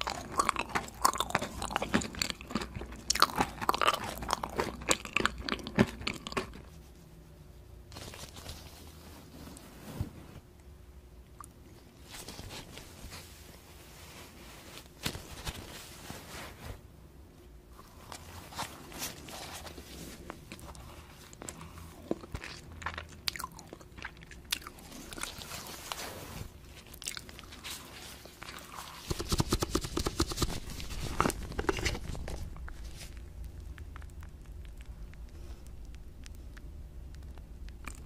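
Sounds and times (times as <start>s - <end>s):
cotton candy crackling bites: 0.0s - 6.7s.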